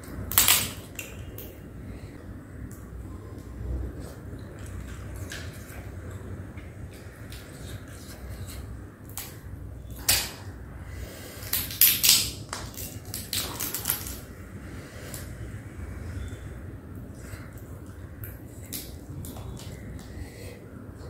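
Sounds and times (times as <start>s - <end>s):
crab shell cracking: 0.0s - 1.5s, 11.4s - 14.3s
low steady hum: 0.0s - 21.0s.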